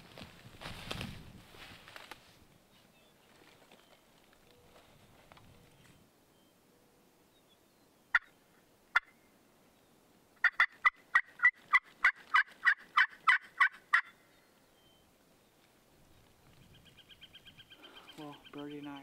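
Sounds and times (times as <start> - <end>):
turkey call clucks: 8.1 - 9.2, 10.4 - 14.2
turkey call yelps: 8.1 - 9.2, 10.4 - 14.2.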